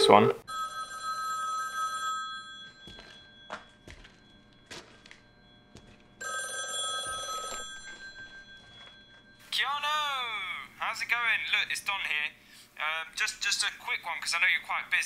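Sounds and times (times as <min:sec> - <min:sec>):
rotary telephone ringing: 0:00.4 - 0:10.2.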